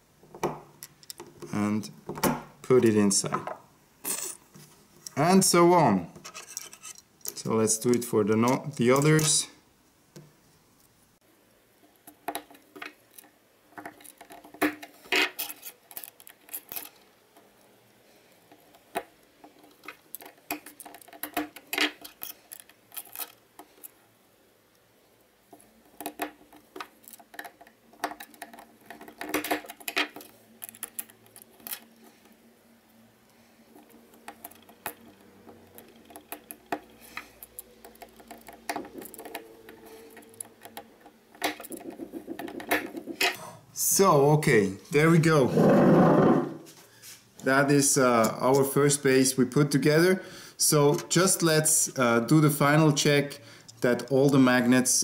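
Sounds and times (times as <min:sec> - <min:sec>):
plastic parts and magnets clicking: 0:25.8 - 0:32.4, 0:33.7 - 0:43.4.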